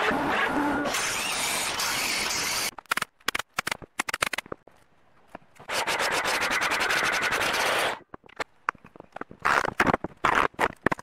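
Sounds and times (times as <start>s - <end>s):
power tool cutting wood: 0.0s - 2.7s.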